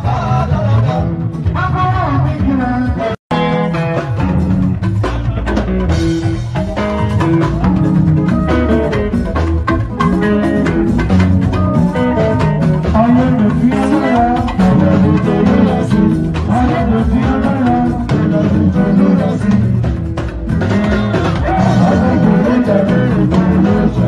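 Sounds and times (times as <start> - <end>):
drum kit rhythm: 0.0 - 24.0
live band music: 0.0 - 24.0
person singing: 7.4 - 9.2, 11.4 - 20.0, 20.6 - 24.0.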